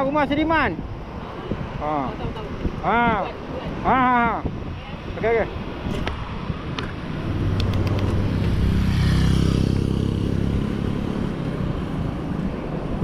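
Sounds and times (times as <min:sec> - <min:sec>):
road noise: 0:00.0 - 0:13.0
wind noise: 0:00.0 - 0:13.0
motorcycle engine passing: 0:07.0 - 0:12.4.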